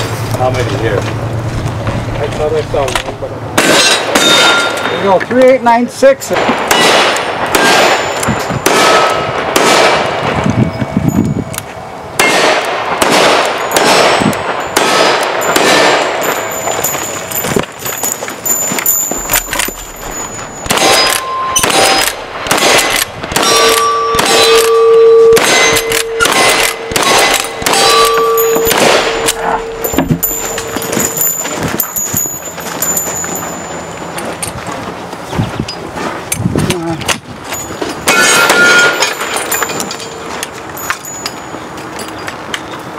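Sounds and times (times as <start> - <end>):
steel targets clanging: 2.4 - 9.4, 12.2 - 34.6, 37.4 - 42.8
rapid gunshots: 6.3 - 10.2, 12.2 - 16.3, 20.7 - 24.7, 25.4 - 28.0, 28.6 - 29.6.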